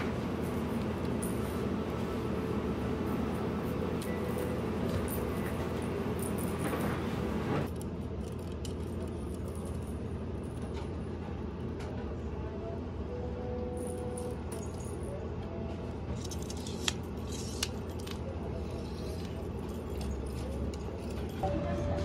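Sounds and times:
low room hum: 0.0 - 22.0.

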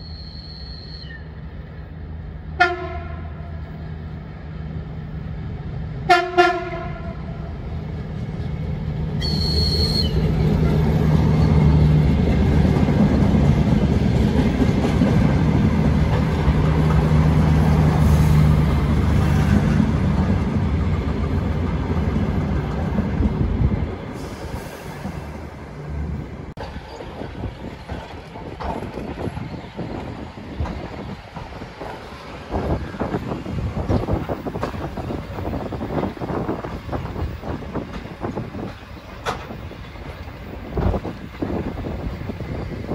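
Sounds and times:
train passing with wheel noise: 0.0 - 42.9
train horn toots: 2.6 - 3.6, 6.1 - 7.4.

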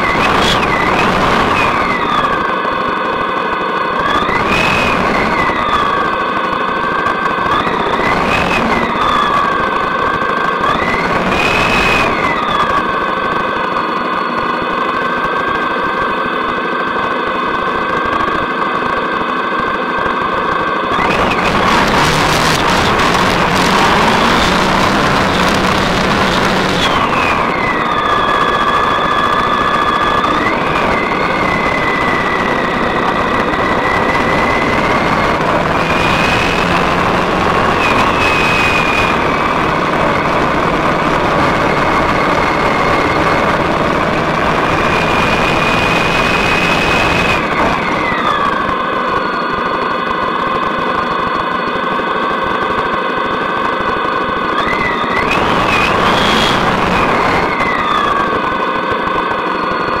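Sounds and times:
loud wind rush: 0.0 - 13.8, 20.4 - 48.9, 54.4 - 58.6
motorcycle engine drone: 0.0 - 60.0
thin whine: 0.0 - 60.0.

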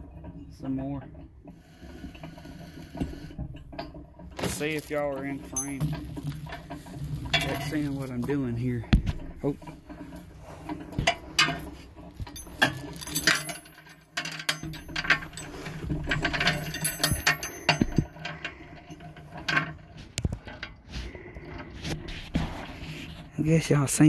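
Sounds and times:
metal parts clicking and clanking: 3.0 - 22.2.

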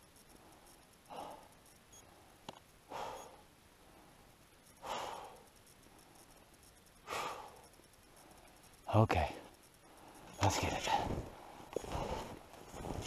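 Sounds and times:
man breathing hard: 0.4 - 6.2, 7.0 - 8.5, 9.8 - 13.0.

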